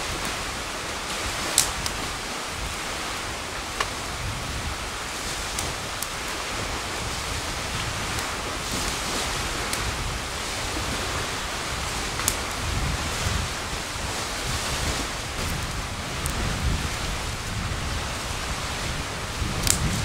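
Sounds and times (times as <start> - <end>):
fire rushing with low rumble: 0.0 - 20.0
campfire crackling pops: 1.2 - 2.1, 3.5 - 4.1, 5.3 - 7.1, 9.7 - 10.0, 12.1 - 12.7, 14.8 - 17.6, 19.4 - 20.0.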